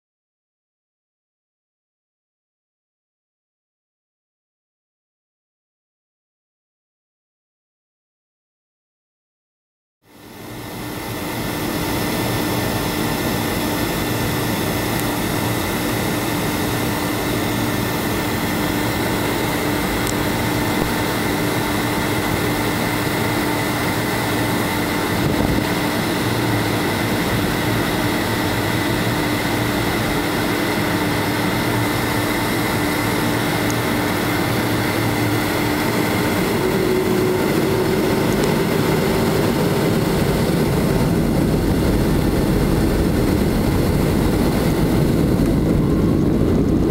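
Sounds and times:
high engine whine: 10.1s - 46.9s
jet engine rush in cabin: 10.1s - 46.9s.

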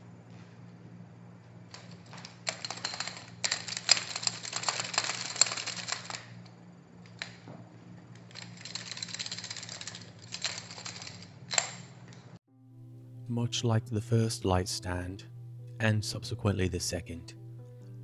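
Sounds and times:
metal light stand rattling and clicking: 1.7s - 12.4s.

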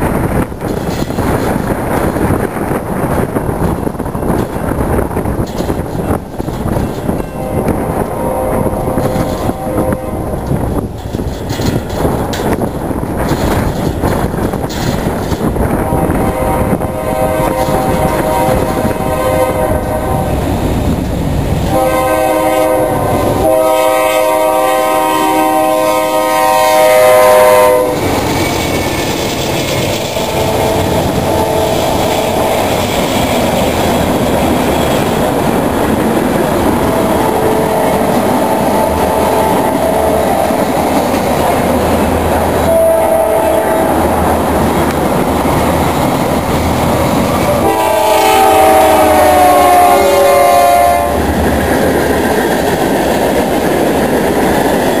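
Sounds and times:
train cars rumbling and clacking: 0.0s - 55.0s
locomotive horn blowing: 7.3s - 10.5s, 15.7s - 20.6s, 21.7s - 28.1s, 29.9s - 33.4s, 36.6s - 40.8s, 42.5s - 44.2s, 47.4s - 51.3s.

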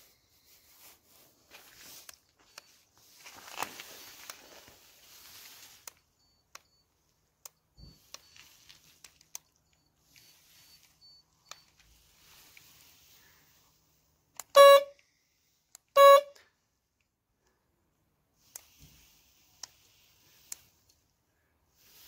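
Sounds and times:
car horn honking: 14.4s - 15.0s, 15.9s - 16.4s.

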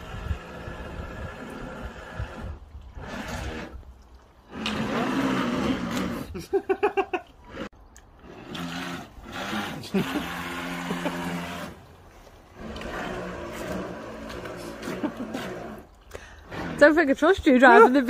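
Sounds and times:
water noise: 0.0s - 18.0s
small electric motor whirring: 8.2s - 11.9s.

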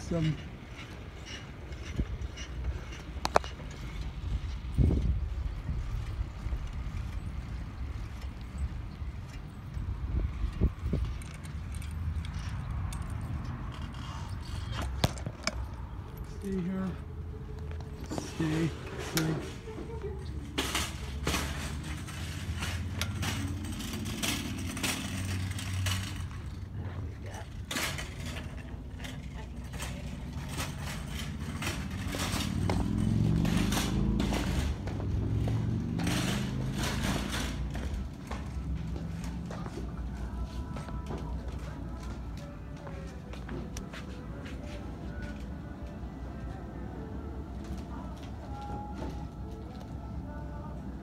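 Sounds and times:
low vehicle rumble: 0.0s - 51.0s
wind rumble on microphone: 1.7s - 15.4s.

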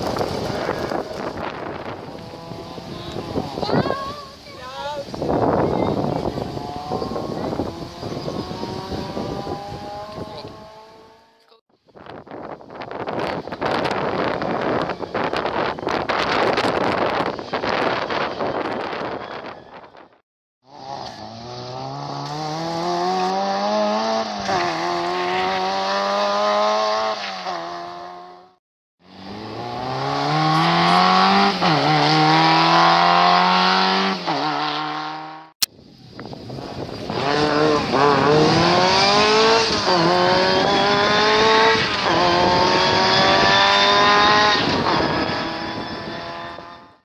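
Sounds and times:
rally car engines accelerating: 5.4s - 11.4s, 20.7s - 28.4s, 29.1s - 35.5s, 37.0s - 47.0s.

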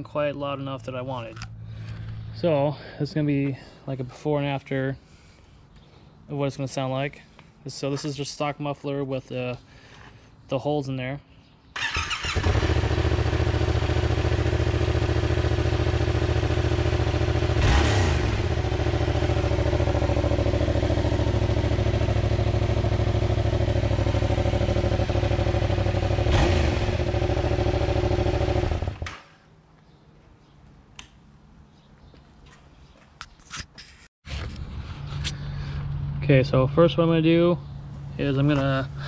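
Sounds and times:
motorcycle engine idling and revving: 11.8s - 29.4s.

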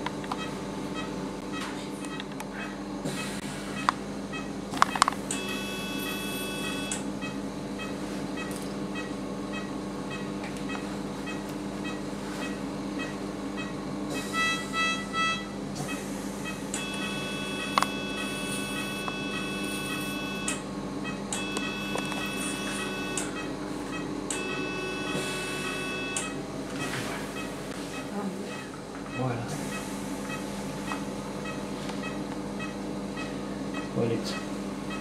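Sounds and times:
electrosurgical unit activation tone: 0.0s - 35.0s
steady equipment hum: 0.0s - 35.0s
patient monitor pulse beeps: 0.3s - 35.0s
short beeps: 16.8s - 26.4s.

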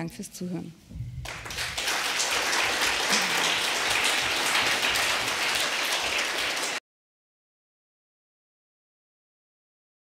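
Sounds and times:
audience applauding: 1.2s - 6.8s.

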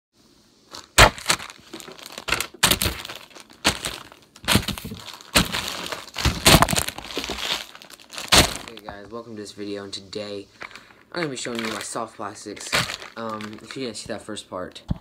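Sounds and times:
sharp crack: 0.9s - 8.9s, 12.6s - 14.2s
handling noise on microphone: 10.5s - 15.0s.

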